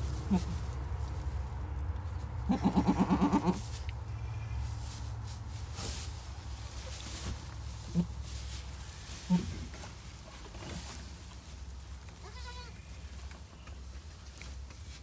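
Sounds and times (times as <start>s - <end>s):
goat bleating: 0.3s - 0.6s, 2.5s - 3.6s, 12.2s - 12.8s.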